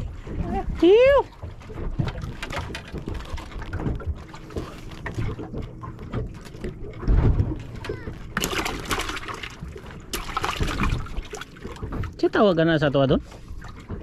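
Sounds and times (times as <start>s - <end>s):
water lapping against a boat: 0.0s - 14.0s
low thump: 5.2s - 8.1s.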